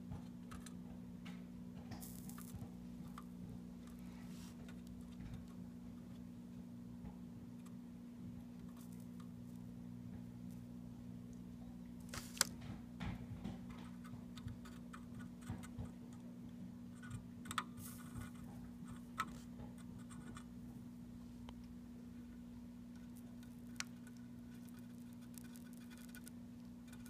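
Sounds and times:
steady low hum: 0.0s - 27.0s
soldering iron ticks and scratches: 22.9s - 27.0s.

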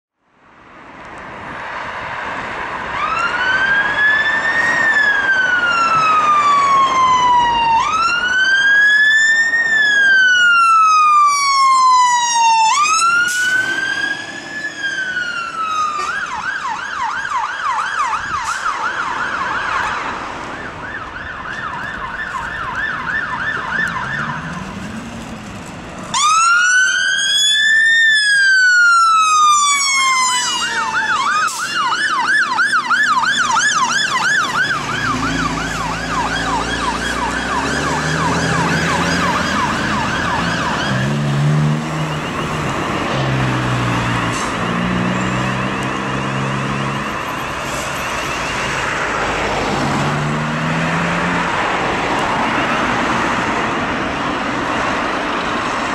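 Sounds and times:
electronic siren wail and yelp: 3.0s - 24.6s, 26.1s - 41.2s, 41.9s - 50.1s
diesel engine rumble: 21.4s - 27.2s.

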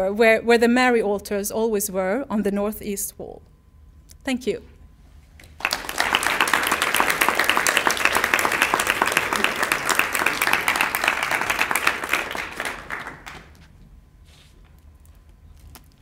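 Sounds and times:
audience applauding: 5.6s - 13.6s.

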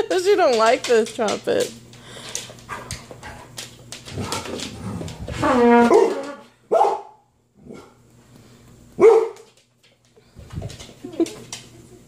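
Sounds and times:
dog barking: 5.8s - 7.9s, 9.0s - 9.5s.

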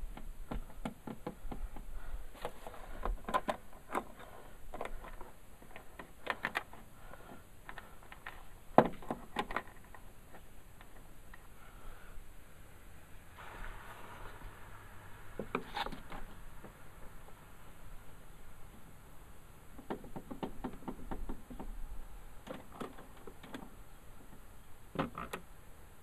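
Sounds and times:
fingers handling screws and plastic: 2.4s - 6.9s.

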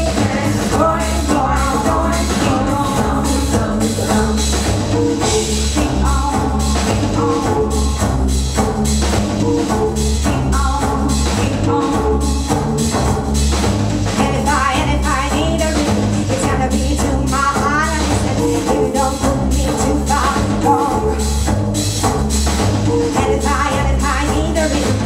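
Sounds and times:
loud dance music: 0.0s - 25.0s.

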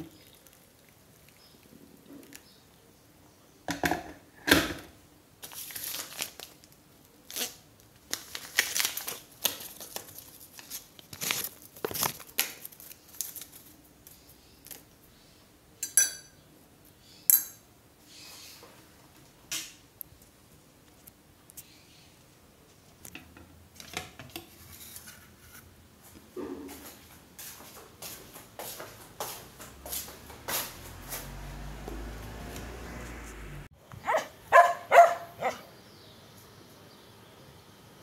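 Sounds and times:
paper sachet tearing and rustling: 5.4s - 13.8s.

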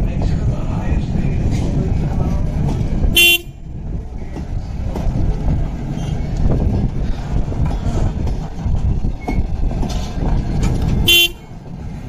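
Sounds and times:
train wheels rumbling on rail: 0.0s - 12.0s
short horn toot: 11.1s - 11.4s.

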